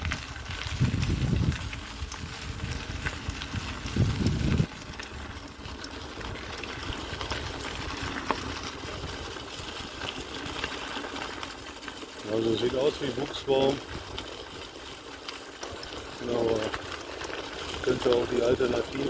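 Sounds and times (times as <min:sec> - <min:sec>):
wind buffeting microphone: 0:00.0 - 0:10.6.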